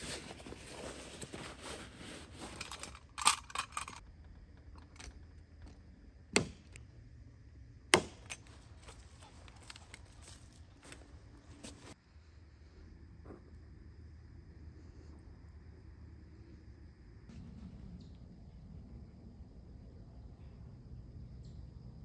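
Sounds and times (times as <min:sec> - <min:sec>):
gear bag rustling: 0:00.0 - 0:04.0, 0:08.4 - 0:12.0
rattling clicks: 0:02.5 - 0:05.8.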